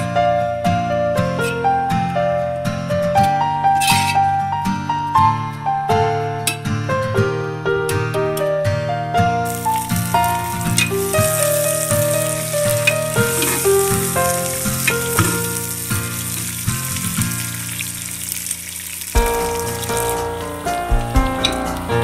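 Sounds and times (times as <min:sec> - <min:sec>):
background music: 0:00.0 - 0:22.0
vegetables sizzling in a pot: 0:09.5 - 0:22.0.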